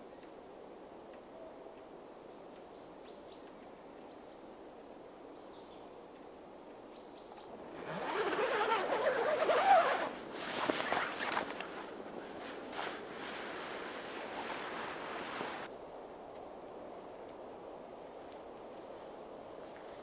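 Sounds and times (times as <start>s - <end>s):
tent fabric rustling: 7.6s - 15.7s.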